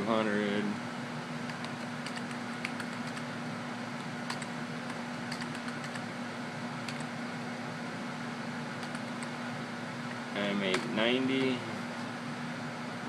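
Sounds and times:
steady fan hum: 0.0 - 13.0
keyboard key clicks: 5.3 - 6.0.

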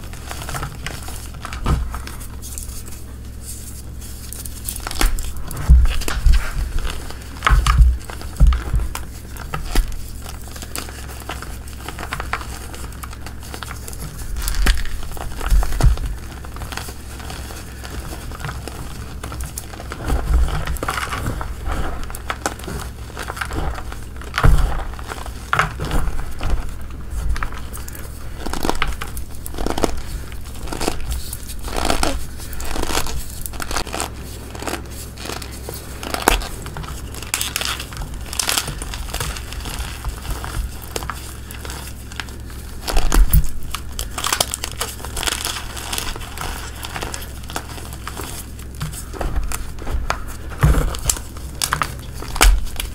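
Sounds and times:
hands crushing chalk: 0.0 - 52.9.

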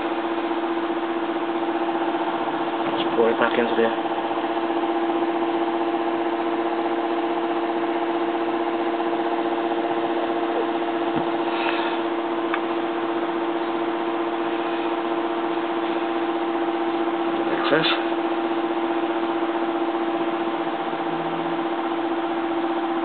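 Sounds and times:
steady mechanical hum: 0.0 - 23.0.

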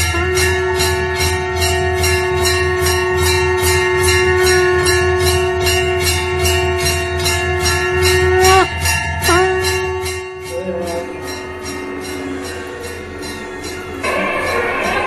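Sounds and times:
temple bell ringing rapidly: 0.0 - 15.0
steady drone tone: 9.3 - 15.0.

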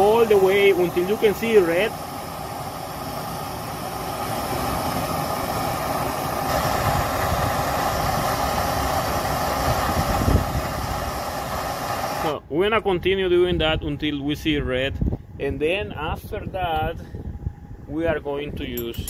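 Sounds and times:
gas torch flame hissing: 0.0 - 12.4.

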